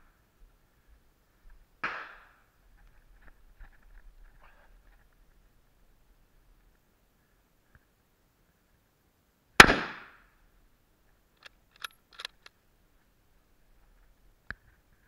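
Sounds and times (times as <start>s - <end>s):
rifle shot: 1.8s - 2.4s, 9.6s - 10.2s
rifle bolt clicking: 11.4s - 12.5s.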